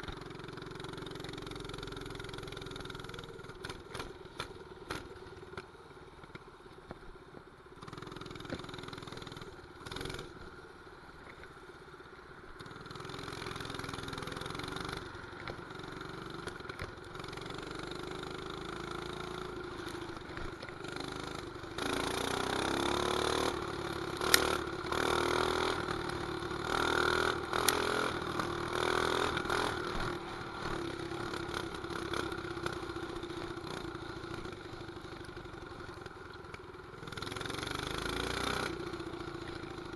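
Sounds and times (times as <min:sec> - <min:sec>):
mini bike engine running: 0:00.0 - 0:06.9, 0:07.7 - 0:10.6, 0:12.6 - 0:39.9
sharp clicks: 0:27.6 - 0:27.8.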